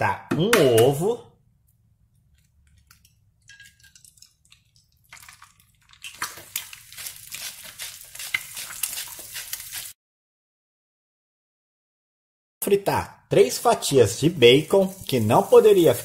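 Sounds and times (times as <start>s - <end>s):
egg sizzling in a pan: 2.7s - 10.0s, 14.2s - 16.0s.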